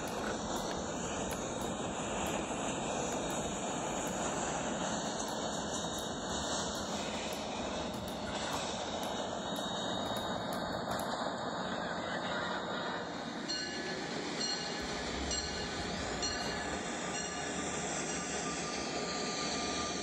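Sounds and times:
train wheels on track: 0.0s - 20.0s.

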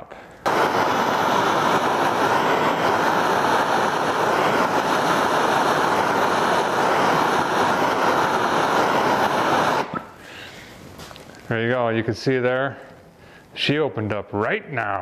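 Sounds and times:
gas torch hissing: 0.0s - 11.6s.

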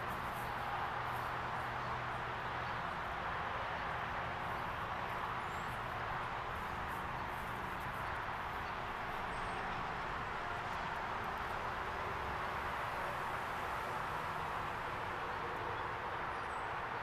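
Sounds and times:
outdoor background noise: 0.0s - 17.0s.

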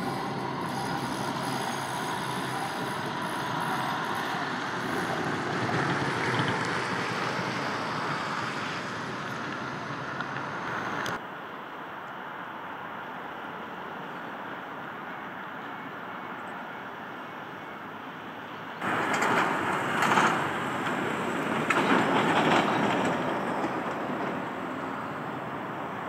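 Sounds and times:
tram running: 0.0s - 11.2s, 18.0s - 26.0s
street noise: 0.0s - 26.0s.

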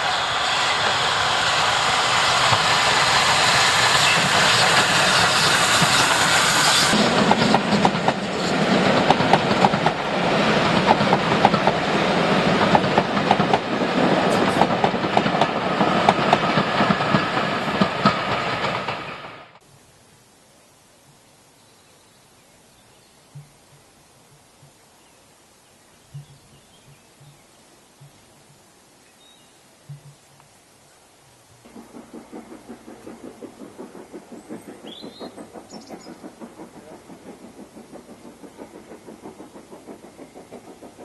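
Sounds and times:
train wheels clickety-clack: 0.0s - 19.6s, 31.5s - 41.0s.

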